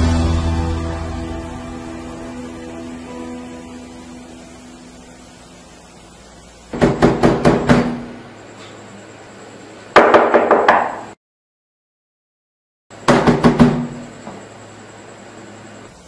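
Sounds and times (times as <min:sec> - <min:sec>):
fist pounding on door: 0:06.8 - 0:08.1, 0:13.1 - 0:14.0.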